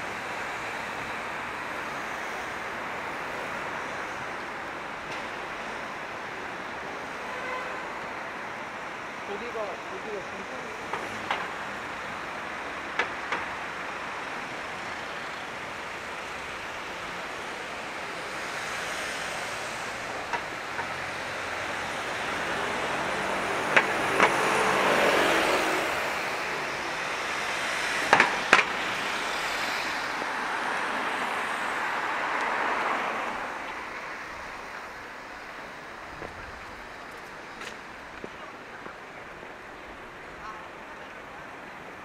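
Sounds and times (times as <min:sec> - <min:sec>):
city street traffic: 0:00.0 - 0:42.0
vehicle passing: 0:18.4 - 0:40.7.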